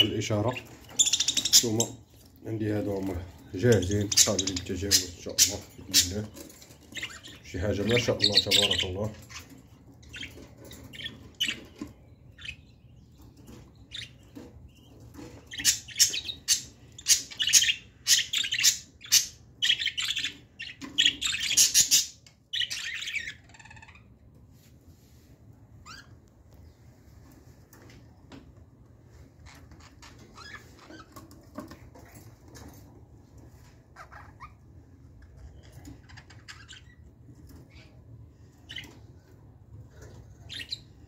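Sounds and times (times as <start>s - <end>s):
budgerigars chirping: 0.0s - 24.2s, 35.2s - 39.1s, 39.9s - 41.0s.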